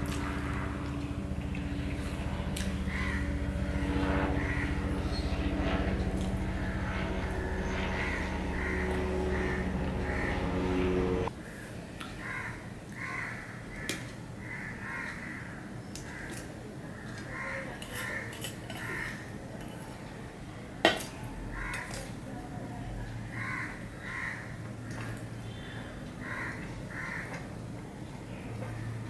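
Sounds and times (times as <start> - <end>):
crows cawing: 0.0 - 11.3, 12.2 - 19.3, 21.5 - 22.1, 23.2 - 27.5.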